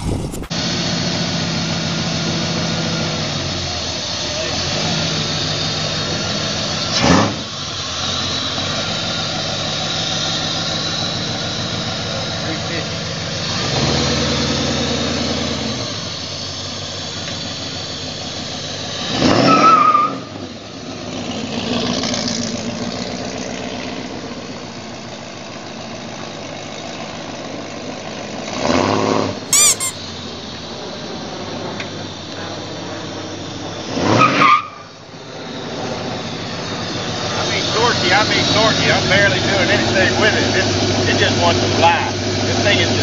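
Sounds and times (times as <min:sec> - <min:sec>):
short high squeal: 0:29.5 - 0:30.0.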